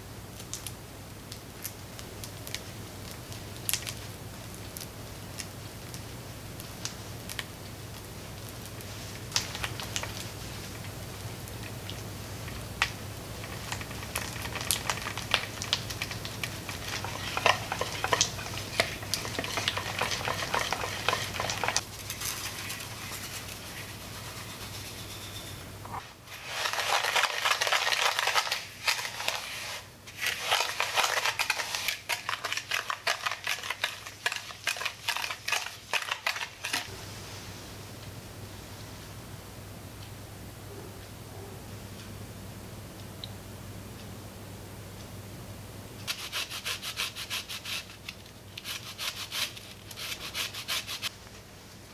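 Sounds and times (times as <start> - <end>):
sugar pouring: 13.4 - 25.0, 26.2 - 36.9
spatula squelching butter in bowl: 13.4 - 25.2
whisk scratching against glass: 16.7 - 25.6.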